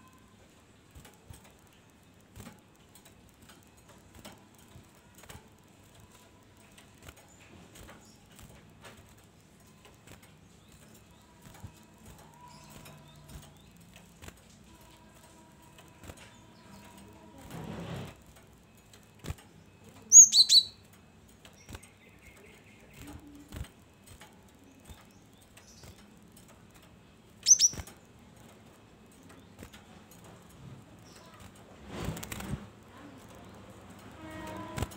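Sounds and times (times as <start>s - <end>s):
bird high chirps: 20.0s - 20.8s, 27.4s - 27.9s.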